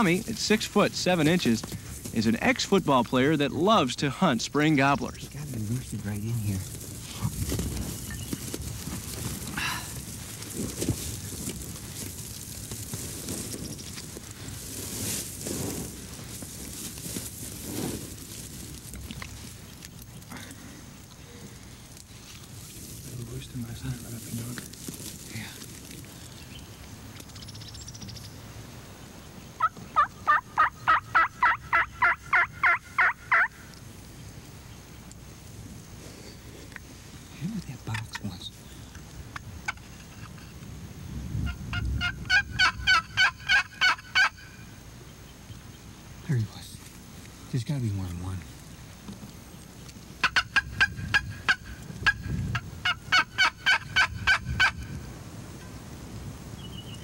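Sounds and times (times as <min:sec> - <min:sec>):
turkey yelps: 0:29.6 - 0:33.6, 0:41.5 - 0:44.6, 0:50.2 - 0:54.9.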